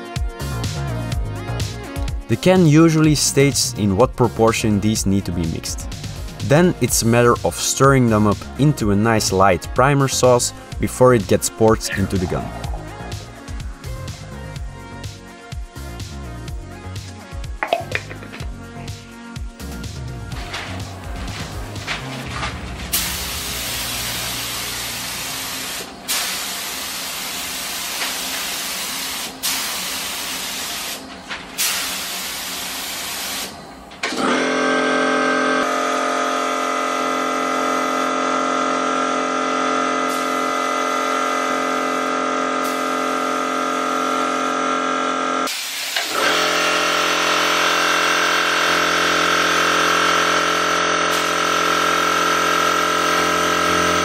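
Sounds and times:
air compressor humming: 0:10.5 - 0:14.8, 0:16.6 - 0:54.0
spray gun hissing: 0:22.9 - 0:33.6, 0:42.6 - 0:42.9, 0:45.5 - 0:46.8.

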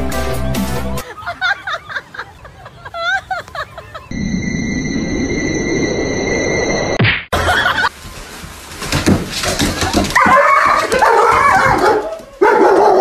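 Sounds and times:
knocks and clatter: 0:08.8 - 0:11.9
dog barking and whining: 0:10.2 - 0:13.0.

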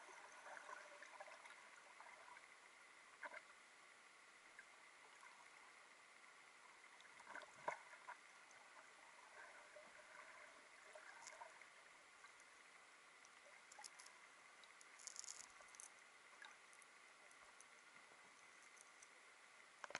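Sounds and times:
faint muffled hiss: 0:00.0 - 0:19.9
soft clicks and ticks: 0:10.9 - 0:12.6, 0:13.2 - 0:19.2.

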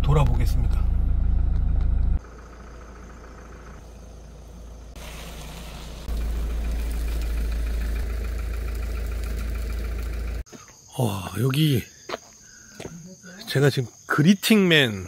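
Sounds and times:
engine droning inside cab: 0:00.0 - 0:10.5
motorhome driving past: 0:00.8 - 0:10.5.

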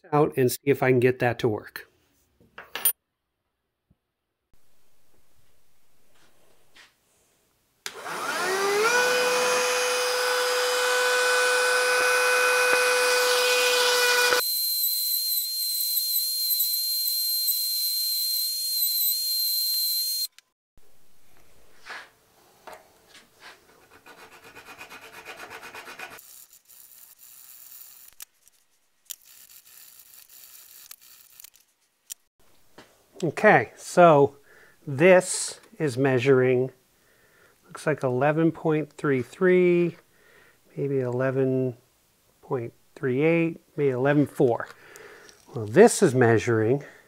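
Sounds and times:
rotary tool whining: 0:07.9 - 0:20.5, 0:26.2 - 0:32.2
small file scraping: 0:23.4 - 0:32.2.

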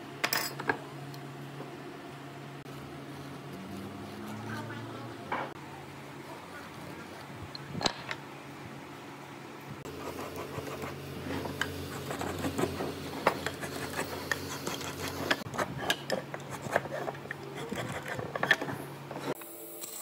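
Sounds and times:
steady low hum: 0:00.0 - 0:19.7
tools scratching on wooden boards: 0:09.9 - 0:19.4.

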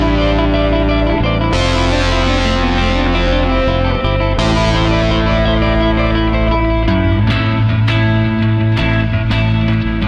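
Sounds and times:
guitar music: 0:00.0 - 0:10.0.

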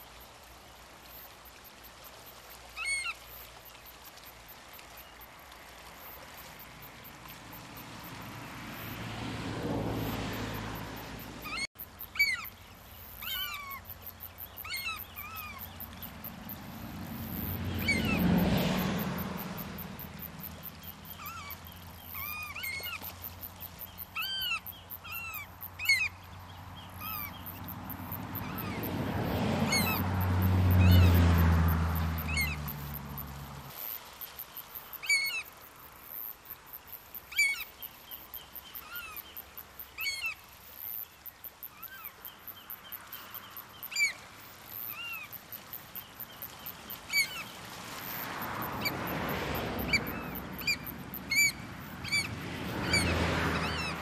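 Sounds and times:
waves washing over rocks: 0:00.0 - 0:11.7, 0:14.6 - 0:24.2, 0:43.9 - 0:54.0
oystercatchers piping: 0:11.4 - 0:23.1, 0:26.8 - 0:30.0, 0:49.8 - 0:54.0.

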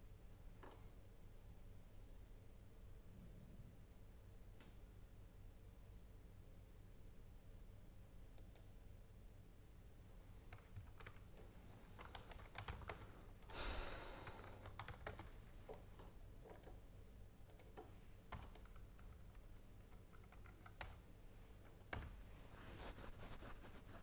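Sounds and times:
keyboard typing clicks: 0:10.5 - 0:13.6, 0:14.2 - 0:16.8, 0:17.4 - 0:21.0.

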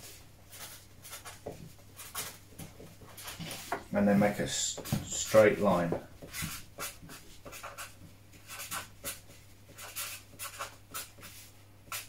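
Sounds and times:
marker writing on paper: 0:00.5 - 0:02.4, 0:04.7 - 0:12.0.

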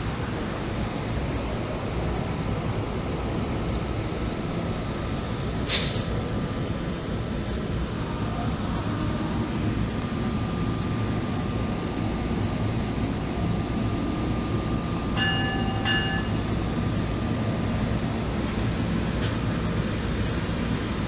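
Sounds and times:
locomotive humming: 0:00.0 - 0:21.0
two-tone electronic chime: 0:15.2 - 0:16.4.

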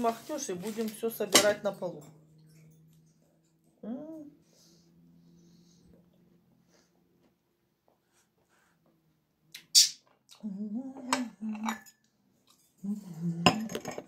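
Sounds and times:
tableware knocking and clinking: 0:13.4 - 0:14.0.

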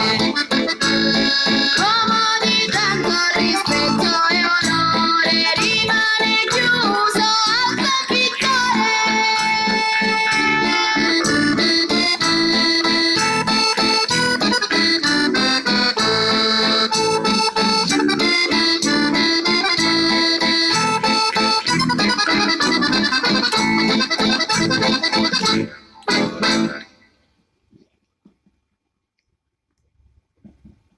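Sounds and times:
music: 0:00.0 - 0:27.1.

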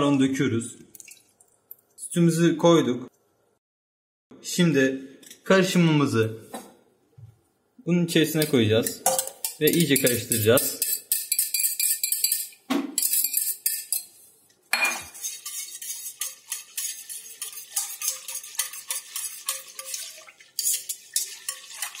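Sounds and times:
whisk clicking against metal pot: 0:08.4 - 0:14.0, 0:15.2 - 0:22.0
metal tapping and scraping in bowl: 0:08.4 - 0:14.1, 0:14.7 - 0:22.0.

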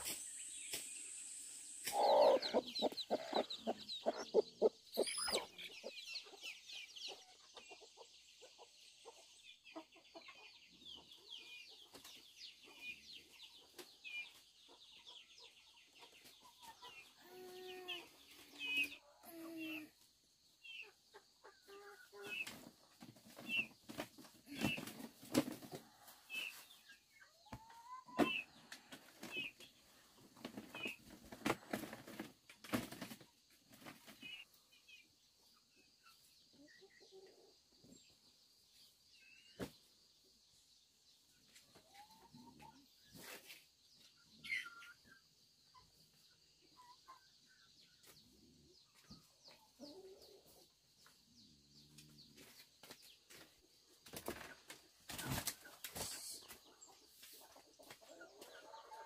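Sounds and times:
high bird chirps: 0:00.0 - 0:05.9
chickens clucking: 0:00.0 - 0:59.0.

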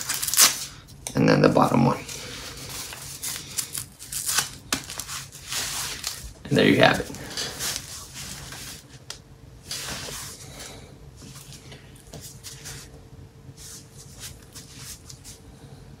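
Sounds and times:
faint steady hum: 0:00.0 - 0:16.0
clothing rustling: 0:02.0 - 0:13.0, 0:13.6 - 0:15.4.

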